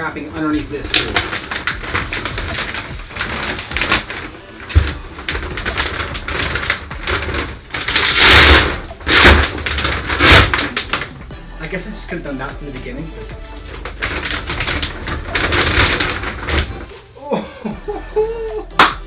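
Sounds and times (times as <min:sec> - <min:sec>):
plastic sheet swishing: 0:00.0 - 0:17.2
plastic sheeting crinkling: 0:00.0 - 0:17.3.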